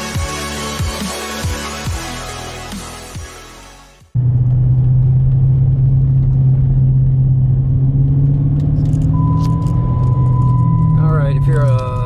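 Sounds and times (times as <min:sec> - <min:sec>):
car engine drone from inside cabin: 0:04.1 - 0:12.0.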